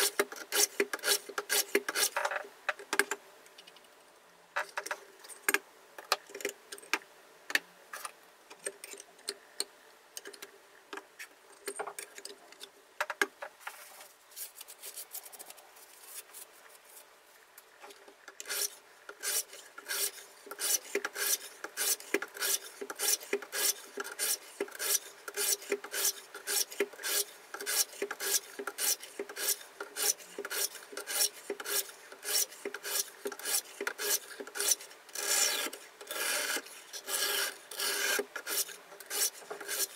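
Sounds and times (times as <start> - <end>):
sharpening stones rasping on blade: 18.4 - 39.9.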